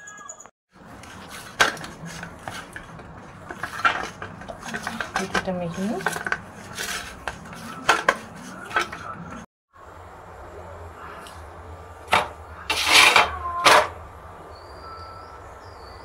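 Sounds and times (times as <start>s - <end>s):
steel plate scraping on floor: 1.0s - 9.2s, 12.2s - 13.9s.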